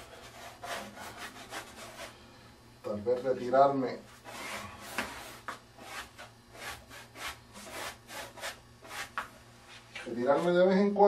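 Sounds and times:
paintbrush scrubbing on canvas: 0.0 - 2.2, 4.1 - 10.5.

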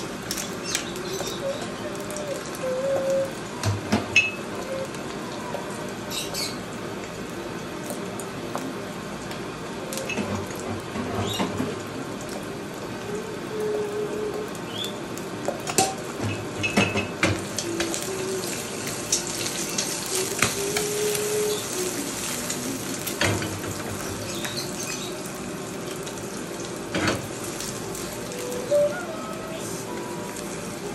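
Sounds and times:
eggs sizzling in oil: 0.0 - 30.9
wok clacking on burner grate: 15.6 - 18.0.

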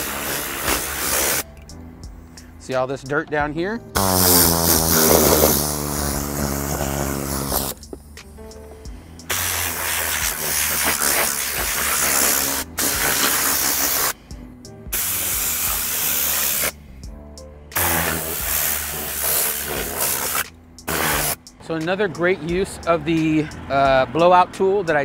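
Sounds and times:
compressed air blasting: 0.0 - 2.6, 4.0 - 14.3, 14.9 - 16.9, 17.7 - 21.5.

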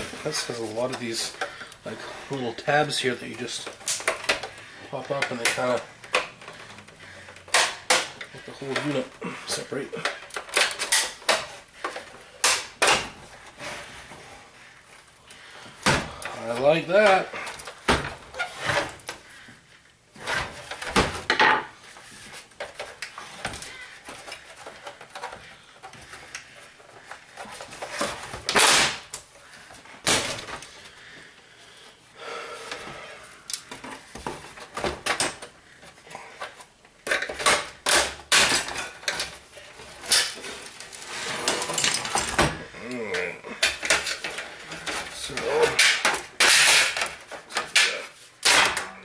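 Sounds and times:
plastic and metal casing prying: 3.6 - 9.0, 10.0 - 13.5, 22.4 - 29.3, 33.5 - 49.0.

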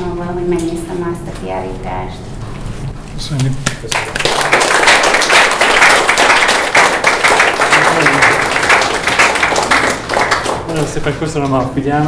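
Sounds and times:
audience applauding: 3.7 - 11.2.

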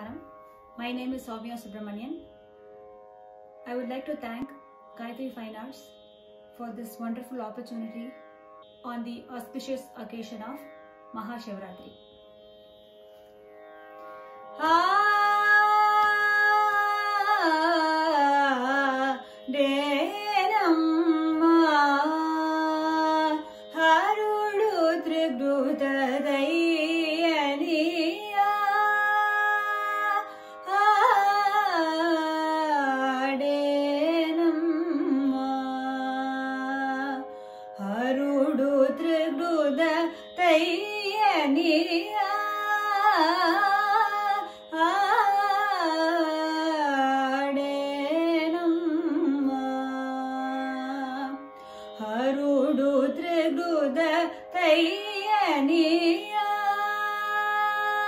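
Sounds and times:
woman singing ornamented phrases: 8.8 - 12.0, 14.6 - 58.0
singer breathing: 37.3 - 37.8, 51.5 - 52.0.

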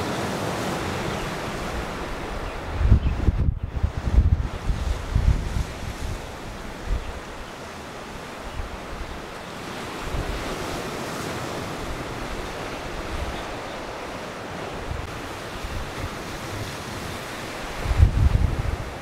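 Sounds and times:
wind on microphone: 0.0 - 7.5, 8.4 - 19.0
sea surf: 0.0 - 19.0.

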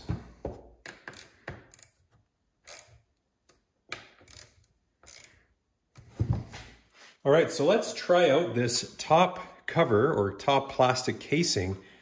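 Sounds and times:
hand ratchet clicking: 0.8 - 5.5.

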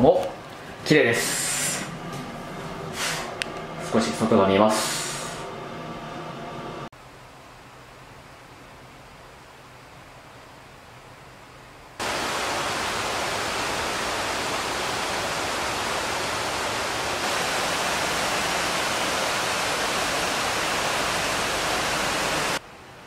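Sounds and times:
river water rushing: 12.0 - 22.6.

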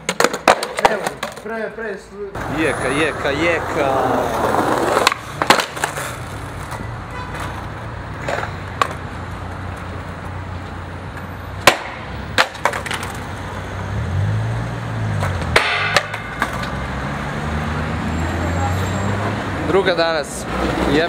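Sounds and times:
skateboard smacking on stone: 0.0 - 1.5, 4.5 - 7.6, 11.6 - 13.2
skateboard tail popping: 0.0 - 1.5, 4.3 - 10.2, 11.6 - 13.3, 15.2 - 16.8
low traffic rumble: 0.0 - 21.0.

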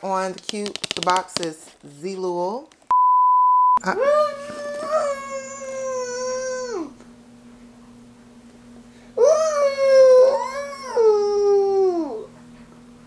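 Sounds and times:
toddler wailing: 4.0 - 7.0, 9.2 - 12.3.

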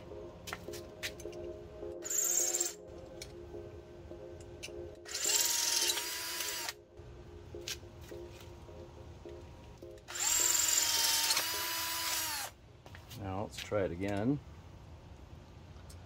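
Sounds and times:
power drill drilling metal: 5.1 - 6.8, 10.1 - 12.5.

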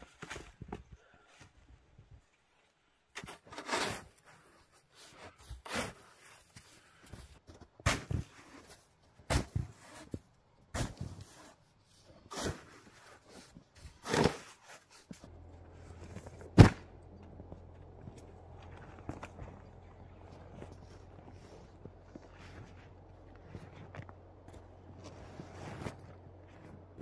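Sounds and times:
snow shovel scraping snow: 3.2 - 7.0, 7.9 - 10.2, 10.8 - 11.6, 12.2 - 16.7, 20.3 - 24.0, 24.9 - 26.8
low steady hum: 15.3 - 27.0.

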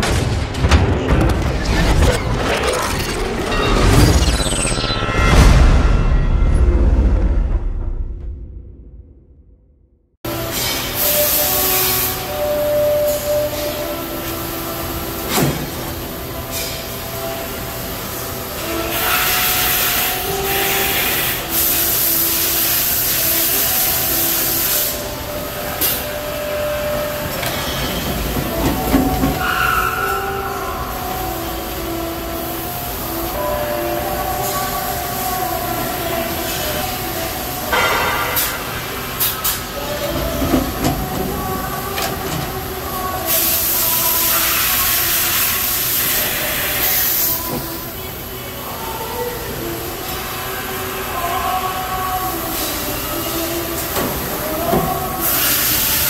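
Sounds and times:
machine running with clunks: 0.0 - 9.5, 10.3 - 17.8, 24.6 - 30.2, 36.5 - 45.5
loud hiss of air: 43.2 - 47.5, 55.2 - 56.0.

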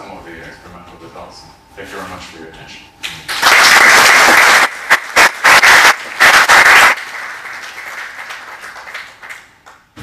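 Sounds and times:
audience applauding: 3.3 - 9.8.

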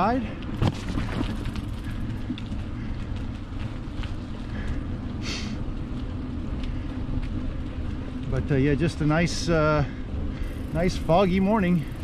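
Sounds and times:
bicycle tyre noise: 0.0 - 12.0
faint ticks: 5.9 - 8.4.

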